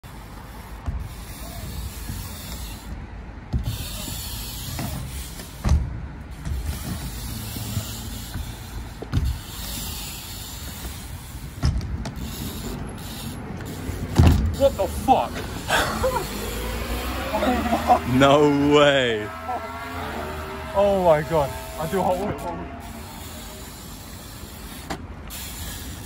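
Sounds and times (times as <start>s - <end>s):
bike tyres rolling on ramp: 0.0s - 26.0s
wheels thudding on ramp: 0.8s - 2.8s, 3.4s - 14.7s.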